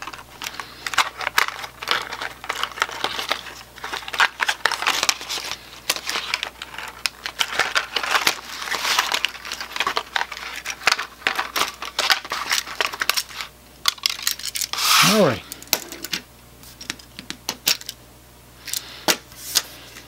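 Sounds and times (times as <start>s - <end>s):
cardboard packaging crinkling: 0.0s - 15.0s.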